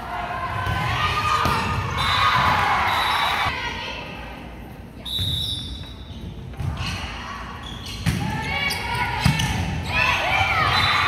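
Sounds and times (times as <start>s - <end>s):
voices echoing in a hall: 0.0s - 5.2s.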